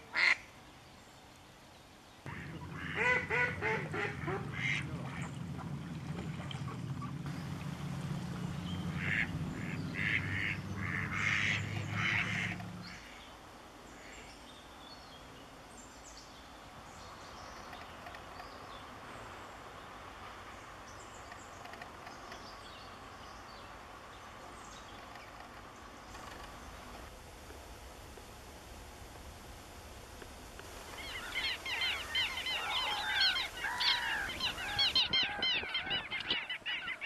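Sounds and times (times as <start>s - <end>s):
low steady hum: 0.0s - 37.0s
ducks quacking: 0.1s - 0.4s, 2.3s - 7.6s, 8.2s - 13.2s, 30.9s - 37.0s.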